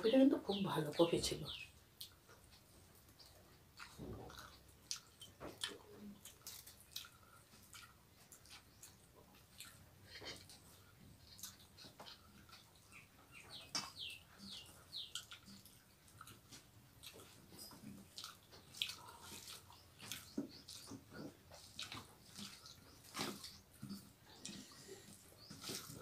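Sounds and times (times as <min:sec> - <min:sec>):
wet chewing and lip smacks: 0:01.8 - 0:26.0
fingers mixing rice on steel plates: 0:11.4 - 0:26.0.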